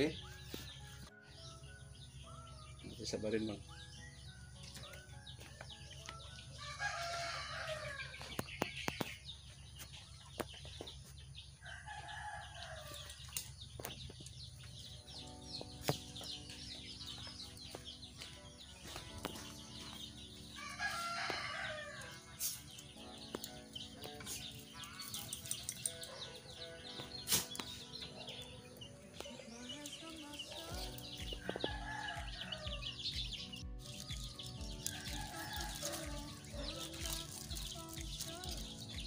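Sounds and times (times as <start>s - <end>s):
rooster crowing: 6.4s - 8.2s, 20.5s - 22.2s.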